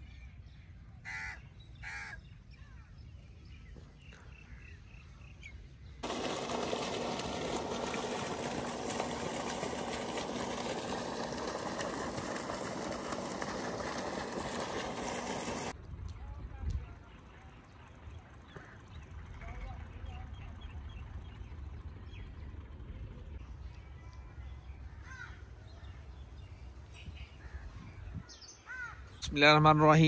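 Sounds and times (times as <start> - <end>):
crow cawing: 1.1 - 2.2, 28.7 - 29.0
water gushing from pipe: 6.0 - 15.8.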